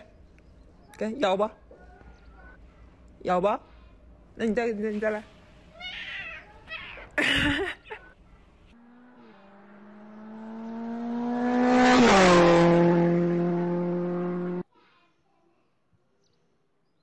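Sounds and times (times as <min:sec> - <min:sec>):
vehicle engine passing by: 0:08.2 - 0:14.6.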